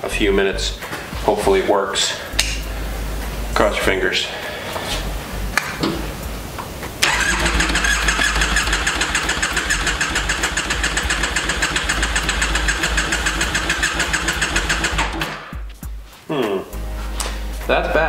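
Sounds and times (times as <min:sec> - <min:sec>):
electric starter cranking engine: 0:07.0 - 0:15.5.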